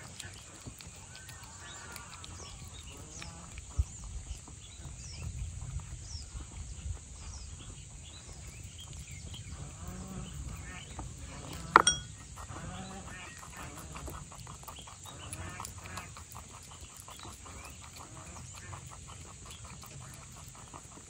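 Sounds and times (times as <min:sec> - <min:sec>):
animal calls and chirps: 0:00.0 - 0:21.0.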